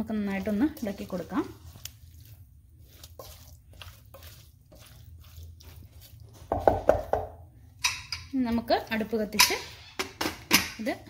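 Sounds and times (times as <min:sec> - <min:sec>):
spatula stirring wet squid: 0:00.0 - 0:10.2
knocks and scraping against pot: 0:03.0 - 0:11.0.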